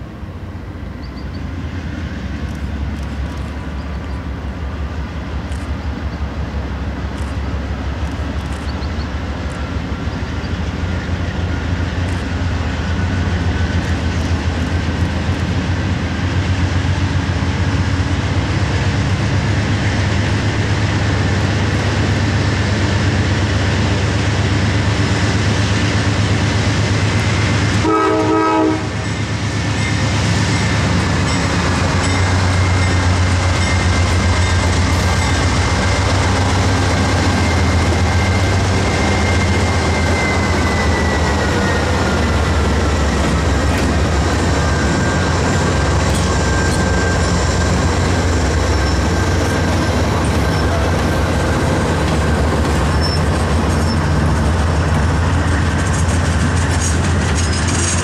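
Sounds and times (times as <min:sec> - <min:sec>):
diesel locomotive engines droning: 0:00.0 - 0:58.0
train cars clattering: 0:00.8 - 0:58.0
train horn blast: 0:27.8 - 0:29.0
high wheel squeal: 0:29.8 - 0:58.0.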